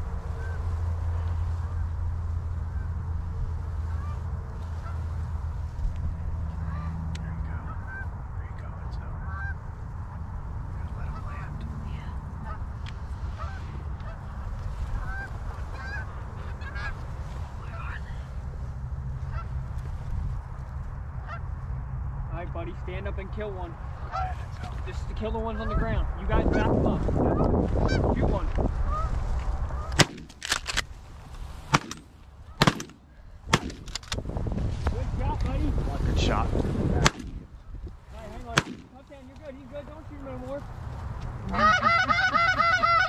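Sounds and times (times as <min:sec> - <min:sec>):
geese honking: 0:00.0 - 0:08.2, 0:09.2 - 0:10.2, 0:10.8 - 0:11.7, 0:12.3 - 0:18.3, 0:19.2 - 0:19.6, 0:21.2 - 0:21.6, 0:24.0 - 0:24.8, 0:25.4 - 0:28.1, 0:28.8 - 0:30.1, 0:41.4 - 0:43.0
wind buffeting the microphone: 0:24.5 - 0:31.8, 0:33.1 - 0:41.5.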